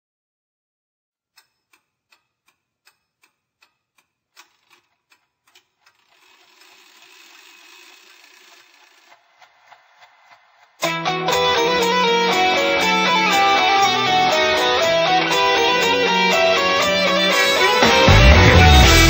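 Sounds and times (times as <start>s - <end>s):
faint clock-like ticking: 1.3s - 7.5s.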